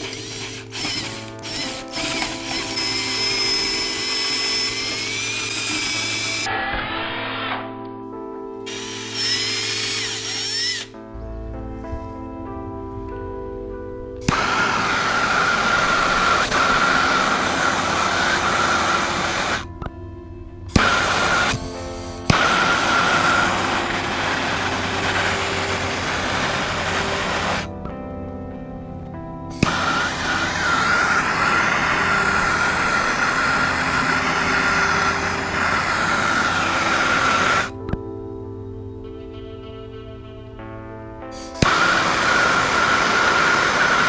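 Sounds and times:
gas torch flame hissing: 0.0 - 6.5, 14.2 - 19.7, 20.7 - 27.7, 29.6 - 37.7, 41.4 - 44.0
gas torch ignition click: 0.0 - 6.5, 20.7 - 27.7, 29.6 - 37.7, 41.5 - 44.0.

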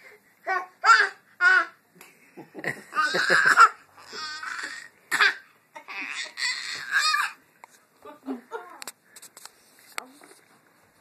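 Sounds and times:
baby laughing and babbling: 2.9 - 7.4.

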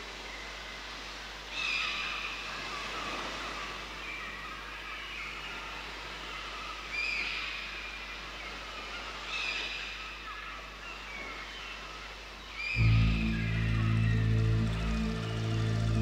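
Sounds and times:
sweeping bird calls: 1.6 - 16.0
birds calling: 12.6 - 16.0.

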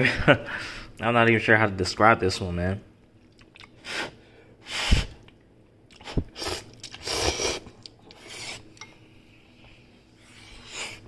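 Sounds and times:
person chewing: 3.2 - 3.8, 5.2 - 8.8
person slurping noodles: 6.0 - 8.7.

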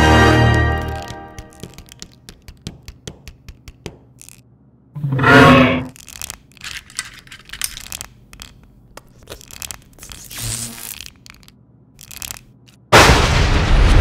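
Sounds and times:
battery being bitten crunch: 0.5 - 4.4, 7.8 - 12.9
creature rummaging and scraping: 5.0 - 12.7.

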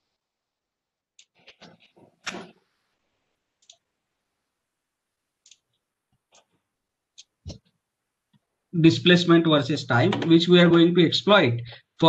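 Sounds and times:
computer mouse clicks: 3.6 - 3.9, 5.4 - 6.5.

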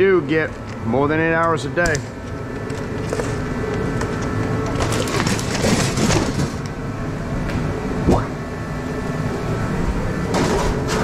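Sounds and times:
low hum: 2.0 - 10.4
metal clattering and scraping: 4.1 - 6.6.

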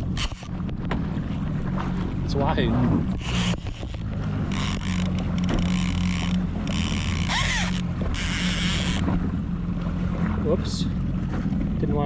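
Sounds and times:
fishing reel ratcheting: 0.0 - 0.5, 3.2 - 9.0
idling engine hum: 0.0 - 12.0.

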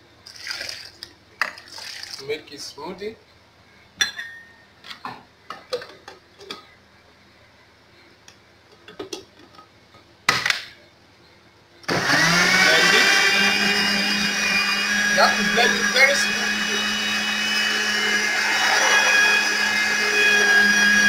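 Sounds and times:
blender motor running: 11.9 - 21.0.

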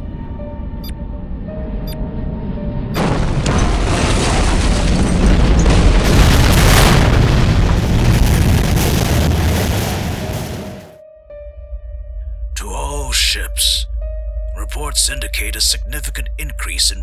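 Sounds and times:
long loud rumble: 0.0 - 11.0
bomb explosion blast: 3.0 - 11.0.

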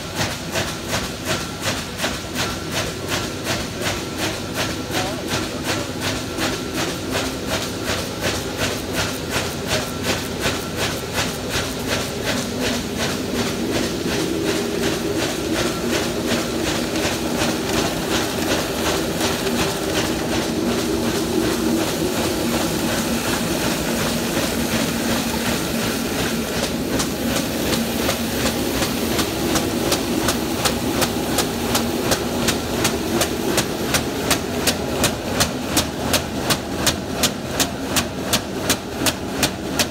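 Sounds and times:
machine rhythmic clatter: 0.0 - 39.9.

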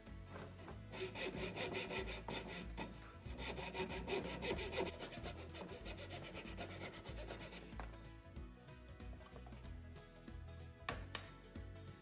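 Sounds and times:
saw cutting wood: 0.3 - 8.1.

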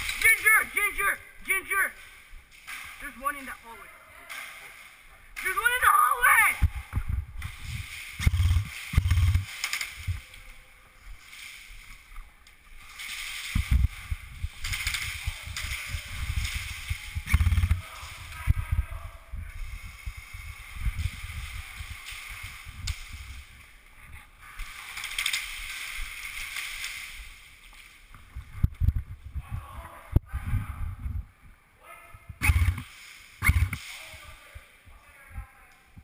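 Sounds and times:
rustling: 6.9 - 18.5, 19.5 - 29.0.

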